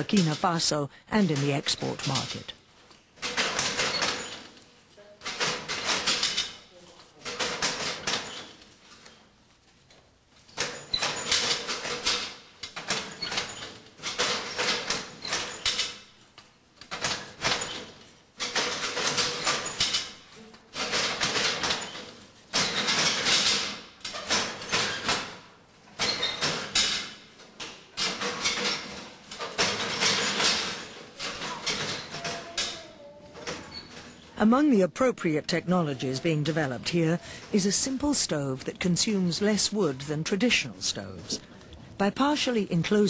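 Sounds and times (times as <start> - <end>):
handloom clattering strokes: 1.2 - 34.3.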